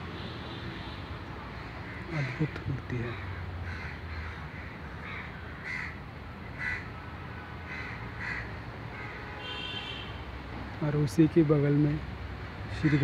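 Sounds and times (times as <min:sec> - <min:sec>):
crows cawing: 0:01.5 - 0:07.0, 0:07.6 - 0:10.0, 0:12.7 - 0:13.0.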